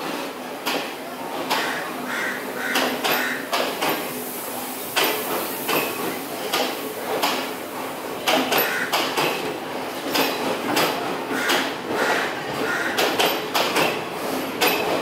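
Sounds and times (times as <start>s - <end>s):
train wheels clacking on rails: 0.0s - 15.0s.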